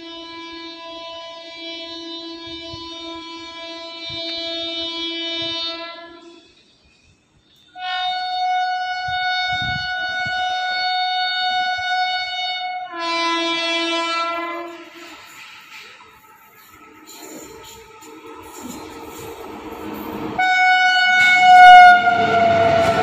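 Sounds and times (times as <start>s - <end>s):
locomotive horn blasts: 0.0s - 6.5s, 7.7s - 15.3s, 16.9s - 23.0s.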